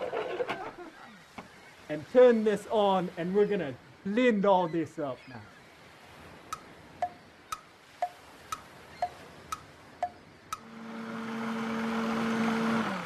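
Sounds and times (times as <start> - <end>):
clock ticking: 6.5 - 10.7
blender motor humming: 10.6 - 13.0.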